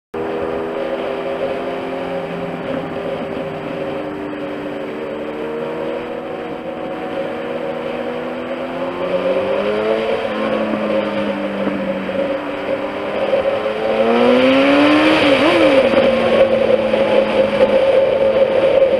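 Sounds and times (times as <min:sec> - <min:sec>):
wind and road noise: 0:00.1 - 0:18.9
motorcycle engine running: 0:00.2 - 0:18.9.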